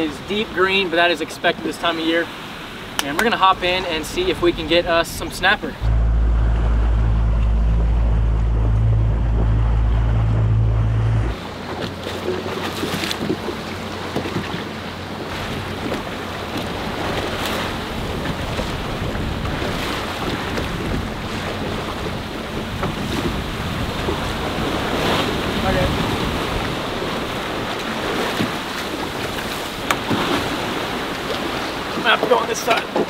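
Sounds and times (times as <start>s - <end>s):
sea water washing against hull: 0.0s - 33.0s
water splashes: 0.0s - 33.0s
outboard motor rumble: 2.3s - 33.0s
wind on microphone: 3.9s - 11.8s, 15.4s - 31.0s.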